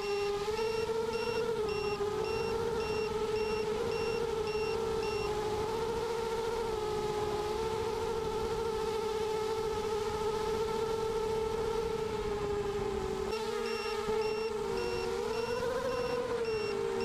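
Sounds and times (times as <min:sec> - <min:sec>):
short electronic beeps: 0:00.0 - 0:05.2, 0:13.6 - 0:16.8
drone motors whining: 0:00.0 - 0:17.0.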